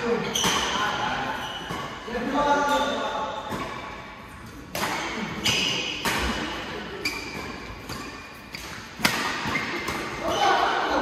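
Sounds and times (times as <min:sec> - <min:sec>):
shoe squeaks on court: 0:00.2 - 0:02.0
rackets hitting shuttlecock: 0:00.2 - 0:10.9.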